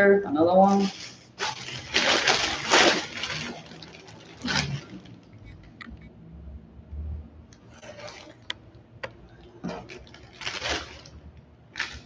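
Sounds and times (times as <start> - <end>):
plastic bag crinkling: 0.5 - 5.8, 7.7 - 8.6, 9.5 - 12.0.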